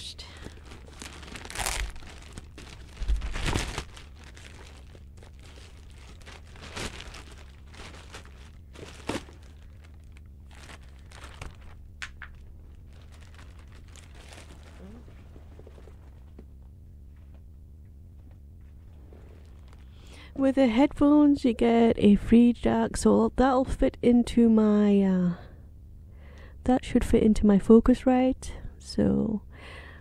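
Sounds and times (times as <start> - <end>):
plastic packaging crinkling: 0.2 - 16.1, 19.4 - 20.0.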